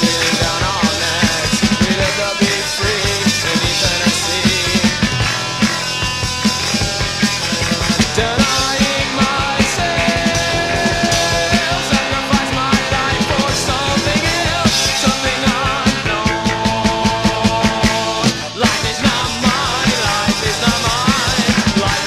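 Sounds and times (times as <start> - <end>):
bass guitar: 0.0 - 22.0
drums: 0.0 - 22.0
electric guitar: 0.0 - 22.0
post-punk rock song: 0.0 - 22.0.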